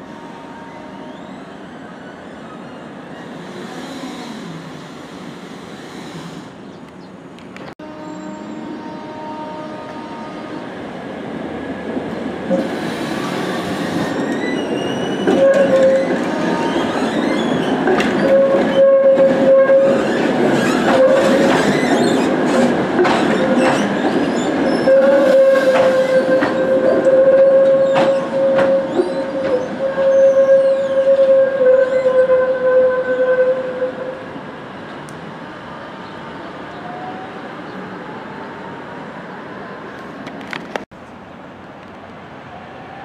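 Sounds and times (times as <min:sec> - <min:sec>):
tram wheels squealing: 0:00.2 - 0:06.8, 0:12.5 - 0:33.9
trams running: 0:08.3 - 0:43.0
wheels clacking on track: 0:12.0 - 0:29.6.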